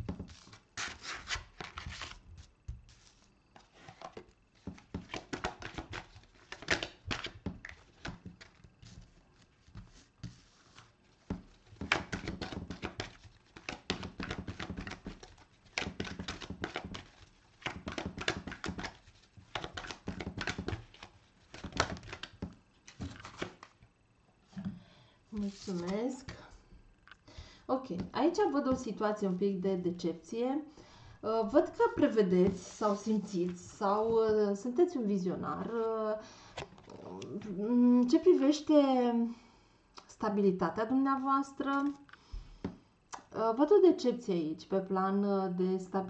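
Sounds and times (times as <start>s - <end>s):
cards shuffling by hand: 0.1s - 23.8s, 25.4s - 26.4s, 41.6s - 42.2s.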